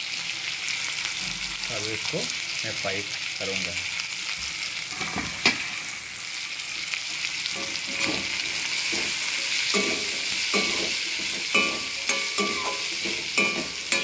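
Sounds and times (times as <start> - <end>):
onions sizzling in hot oil: 0.0 - 14.0
spatula scraping pan: 7.6 - 14.0.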